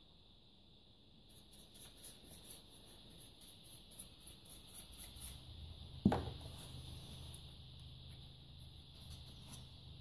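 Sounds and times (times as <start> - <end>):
paintbrush scrubbing plastic: 1.3 - 5.8.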